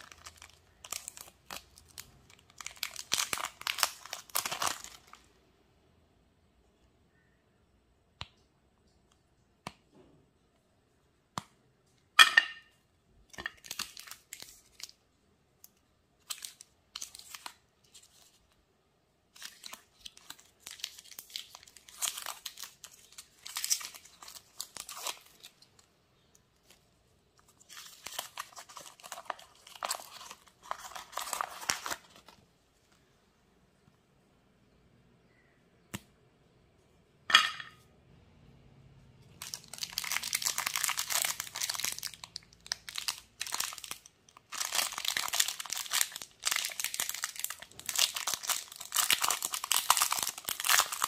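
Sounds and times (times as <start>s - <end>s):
wrapper tearing and crinkling: 0.0s - 5.3s, 13.4s - 15.0s, 16.2s - 18.6s, 19.3s - 25.9s, 27.5s - 32.4s, 39.4s - 51.0s.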